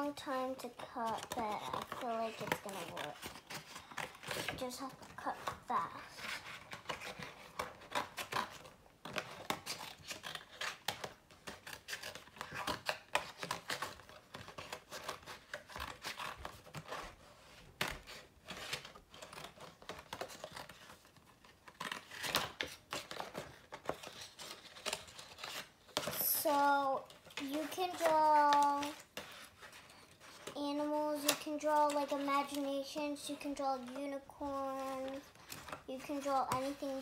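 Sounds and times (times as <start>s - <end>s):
paper rustling: 0.0s - 37.0s.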